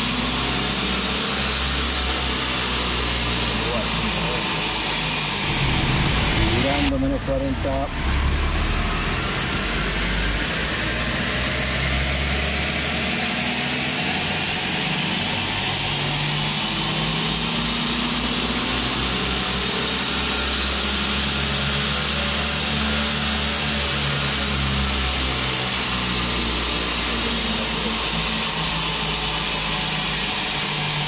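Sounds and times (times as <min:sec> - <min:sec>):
rising whine: 0:00.0 - 0:22.0
diesel engine accelerating: 0:00.0 - 0:31.0.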